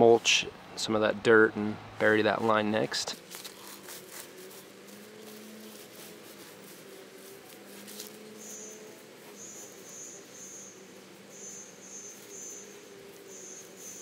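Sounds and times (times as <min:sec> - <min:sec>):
rustle of mulch pushed by hand: 0:02.0 - 0:14.0
cricket chirping: 0:08.0 - 0:14.0.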